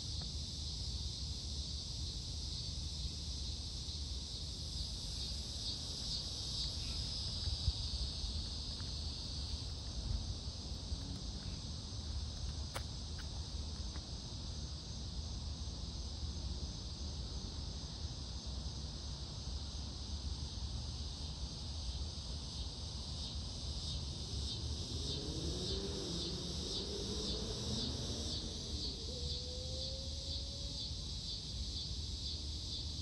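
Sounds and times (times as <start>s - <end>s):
insects chirping: 0.0s - 33.0s.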